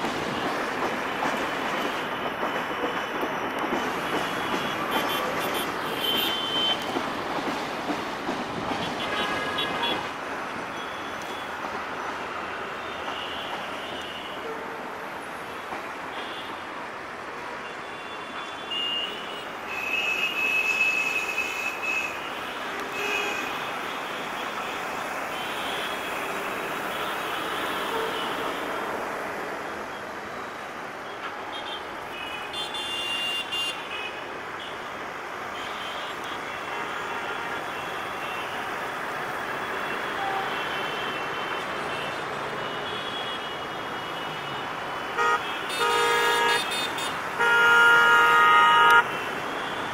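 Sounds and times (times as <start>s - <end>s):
road traffic noise: 0.0s - 49.9s
vehicle horns honking: 9.0s - 10.1s, 31.5s - 34.8s, 39.8s - 49.9s.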